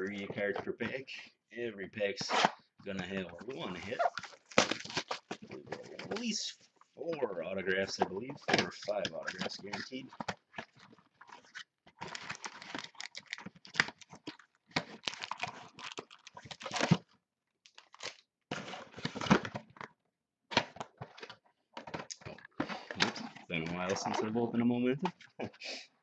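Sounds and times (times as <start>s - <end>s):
cardboard tearing: 10.7s - 17.0s.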